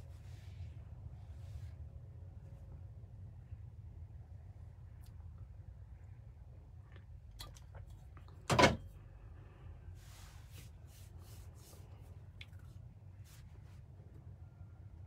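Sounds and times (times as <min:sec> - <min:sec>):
low steady hum: 0:00.0 - 0:15.0
soft rustles: 0:10.0 - 0:14.1.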